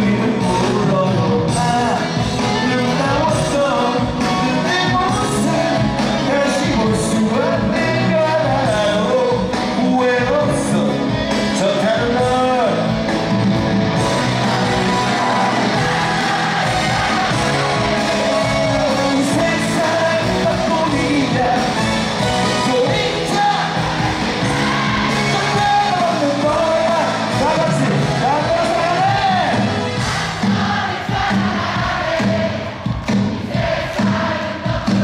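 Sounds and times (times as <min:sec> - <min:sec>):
man singing into microphone: 0:00.0 - 0:12.8, 0:17.3 - 0:23.8
rock band playing: 0:00.0 - 0:35.0.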